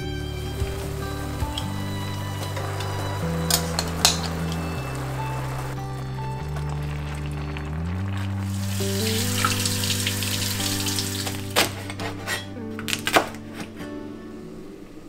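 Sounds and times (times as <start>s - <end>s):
soft music with held chords: 0.0s - 15.0s
food sizzling in a pot: 0.4s - 11.6s.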